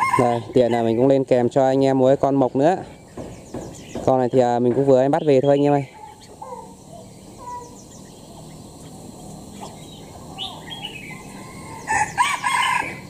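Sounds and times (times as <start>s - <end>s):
songbird chirping and whistling: 2.8s - 13.0s.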